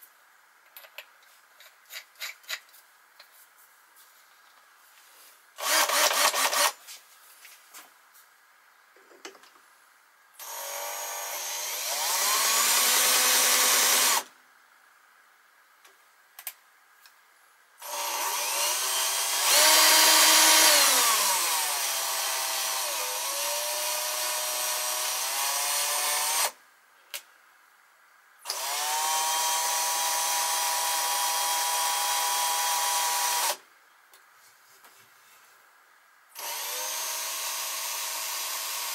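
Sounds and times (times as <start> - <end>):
cordless drill running: 5.6 - 6.8, 10.4 - 14.3, 17.8 - 26.6, 28.5 - 33.6, 36.4 - 38.9.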